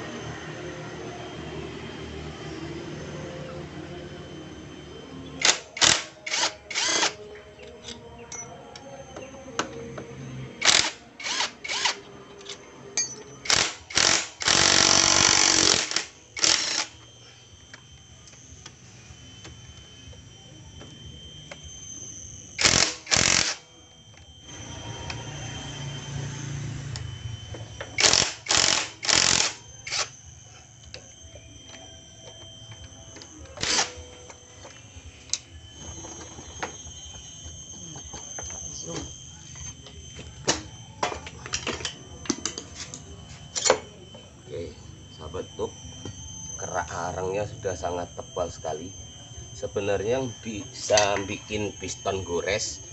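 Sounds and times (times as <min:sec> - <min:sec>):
impact wrench running: 0:05.4 - 0:07.2, 0:10.6 - 0:18.8, 0:22.5 - 0:30.2, 0:31.6 - 0:42.9.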